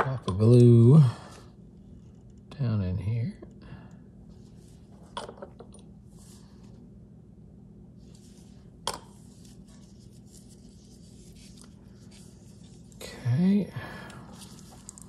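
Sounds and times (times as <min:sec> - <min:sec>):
low steady hum: 0:00.0 - 0:15.0
gloved hands rustling plastic: 0:08.0 - 0:13.4, 0:14.0 - 0:15.0.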